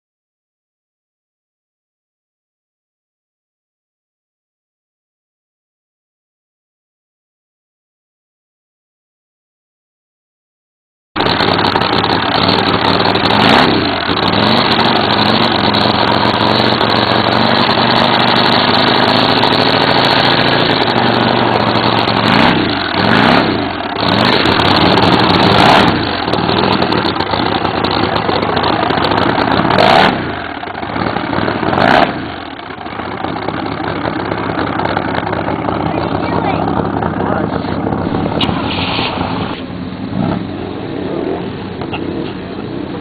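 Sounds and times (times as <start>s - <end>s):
vehicle engines running: 11.2s - 43.0s
vehicles passing by: 11.2s - 43.0s.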